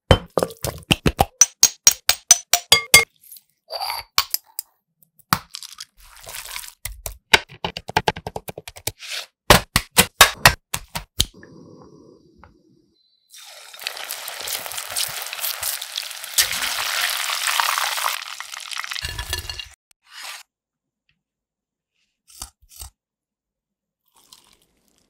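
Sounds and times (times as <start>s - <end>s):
glass jar and cookware clinking: 19.0s - 19.8s.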